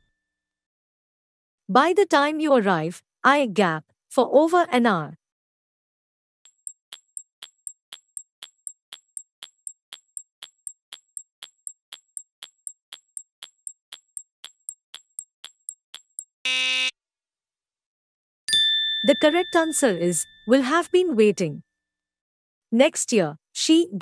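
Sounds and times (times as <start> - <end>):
clock-like ticking: 6.5 - 16.3
buzzer blast: 16.4 - 16.9.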